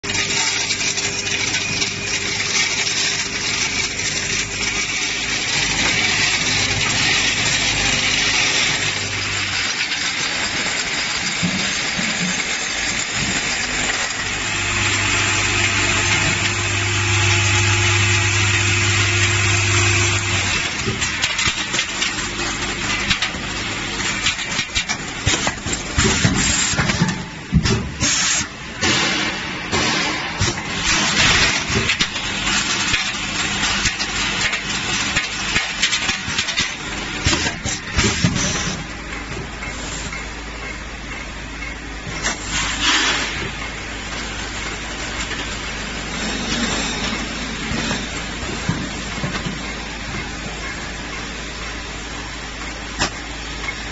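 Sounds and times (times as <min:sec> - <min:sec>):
machine humming: 0:00.0 - 0:27.6.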